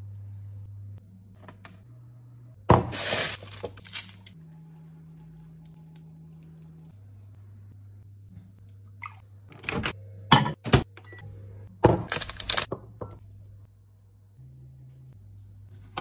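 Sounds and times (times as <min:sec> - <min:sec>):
steady low hum: 0:04.2 - 0:11.8.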